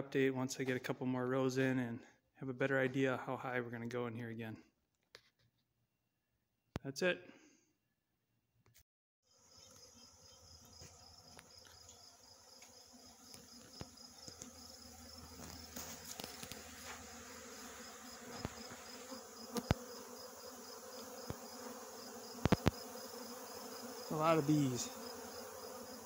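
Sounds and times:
honey bees humming in flight: 9.3 - 26.0.

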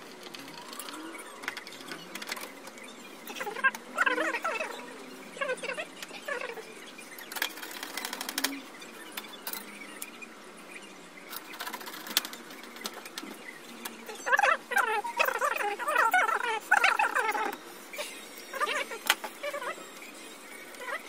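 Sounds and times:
high squeaky whines: 0.2 - 10.1.

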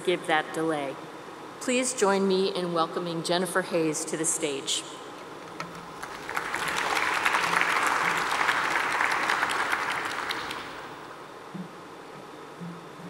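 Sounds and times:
audience applauding: 5.9 - 11.1.

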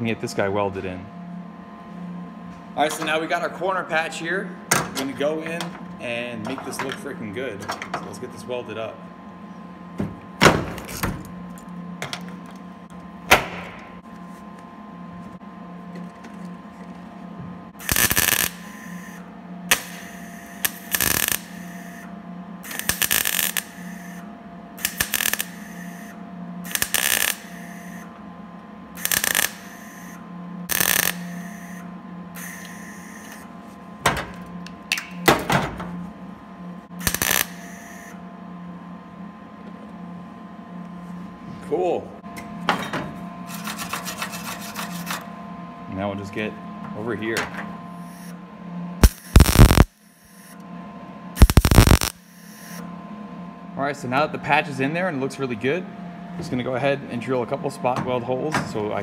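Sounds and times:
steady low hum: 0.0 - 59.0
welding arc crackling: 17.8 - 24.2, 24.8 - 26.1, 26.7 - 28.0, 29.0 - 31.8, 37.0 - 38.1, 49.0 - 50.0, 51.4 - 52.7.

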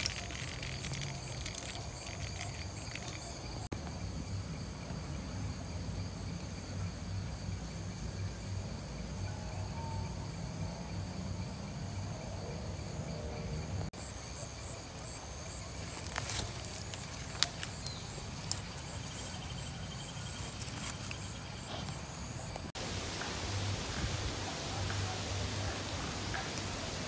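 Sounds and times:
insects trilling: 0.0 - 27.0.

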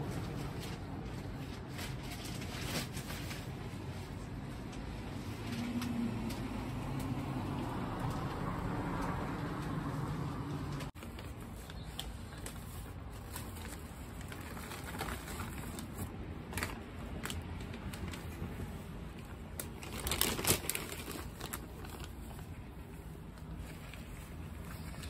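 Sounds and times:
plastic bag crinkling: 10.8 - 25.0.

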